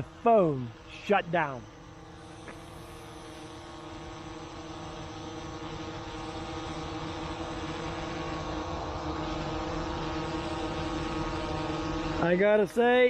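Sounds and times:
drone hovering hum: 0.0s - 13.0s.

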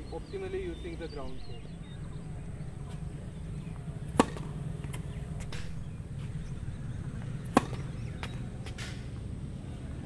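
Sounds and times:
tennis ball impacts: 3.7s - 9.4s.

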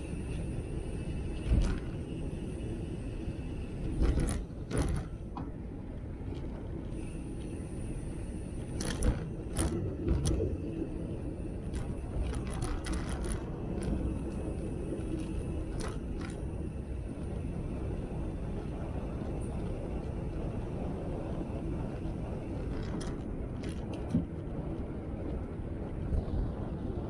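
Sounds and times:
rolling rumble: 0.0s - 27.0s
sharp clicks and rattles: 8.6s - 17.4s, 22.6s - 24.8s.

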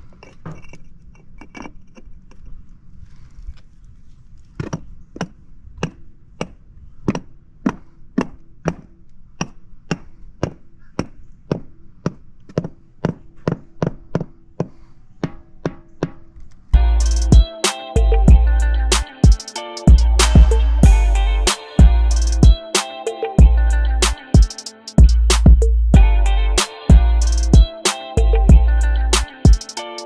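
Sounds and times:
rubber mallet knocking pavers: 4.6s - 16.4s.

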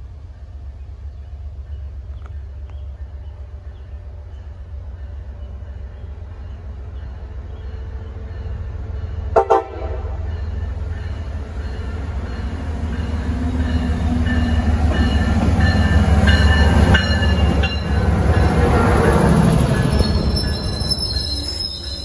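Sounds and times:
locomotive engine and wheel noise: 0.0s - 22.0s
train horn blasts: 9.3s - 10.3s.

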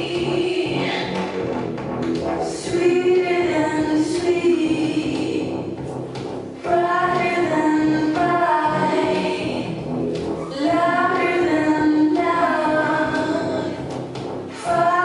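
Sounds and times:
music: 0.0s - 15.0s
voices singing together: 2.4s - 5.8s, 6.6s - 9.8s, 10.4s - 13.8s, 14.6s - 15.0s.

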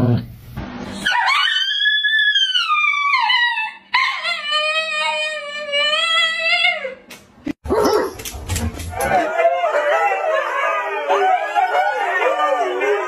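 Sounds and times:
dog howling: 1.0s - 7.1s, 8.9s - 13.0s.

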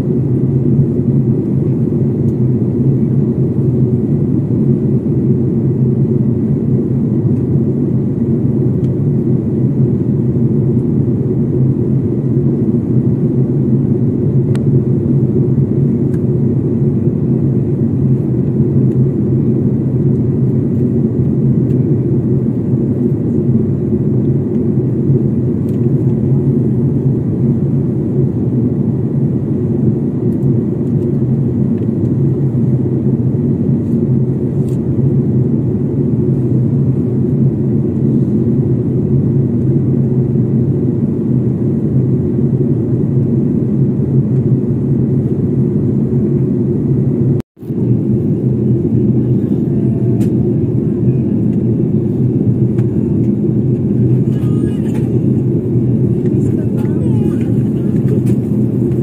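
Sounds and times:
jet airliner cabin rumble: 0.0s - 59.0s.

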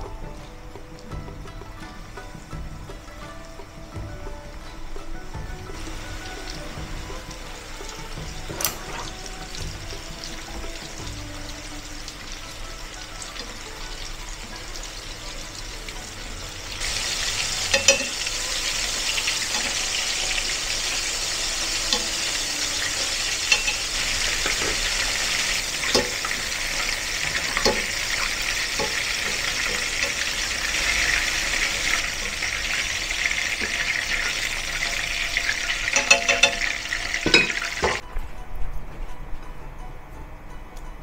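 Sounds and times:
chicken deep-frying in oil: 0.0s - 38.0s
utensils clinking against pan: 5.7s - 38.0s.

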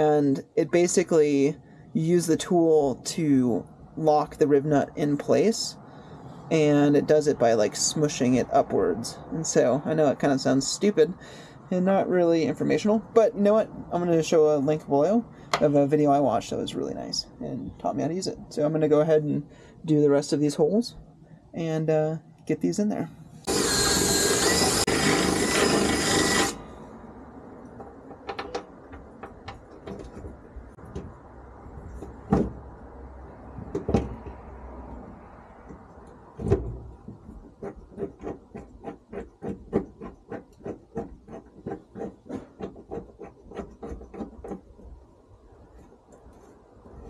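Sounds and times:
drill through sheet metal: 23.5s - 26.8s
tool handling knocks: 27.8s - 31.2s, 32.2s - 32.6s, 33.6s - 34.4s.

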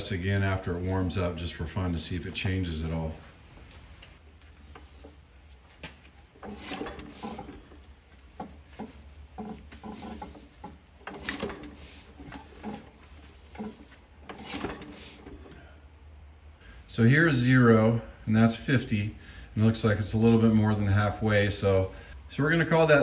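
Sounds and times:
engine rubbing and creaking: 4.2s - 15.7s.

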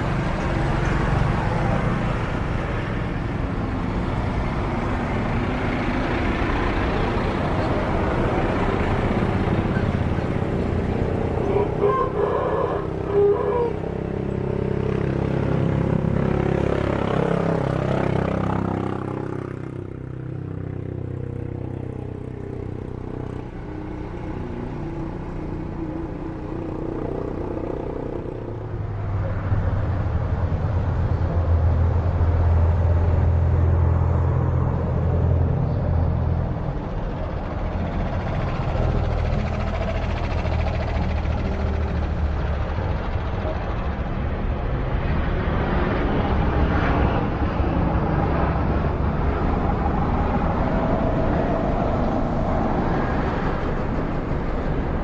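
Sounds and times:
jet engines roaring at takeoff: 27.3s - 55.0s.

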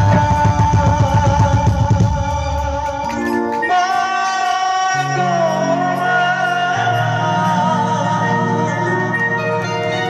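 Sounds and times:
fast drumming: 0.0s - 3.4s
instrumental accompaniment: 0.0s - 10.0s.

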